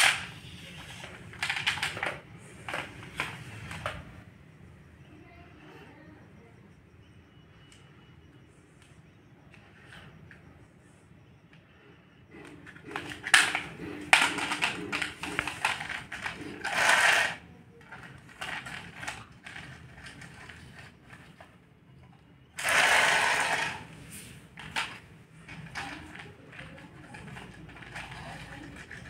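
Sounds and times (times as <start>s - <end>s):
plastic scraping on tile floor: 0.0s - 4.2s, 12.3s - 21.6s, 22.6s - 29.0s
plastic toys clicking and rattling: 0.0s - 4.2s, 12.3s - 29.0s.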